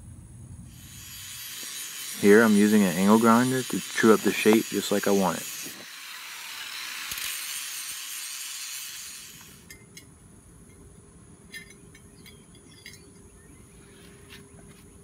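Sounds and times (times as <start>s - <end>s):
angle grinder running: 0.8s - 9.5s
faint sharp clinks: 9.6s - 13.4s.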